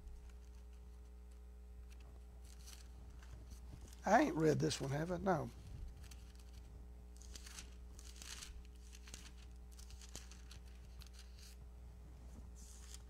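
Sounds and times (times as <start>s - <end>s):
steady low hum: 0.0s - 13.0s
pages turning: 1.8s - 11.6s, 12.4s - 13.0s.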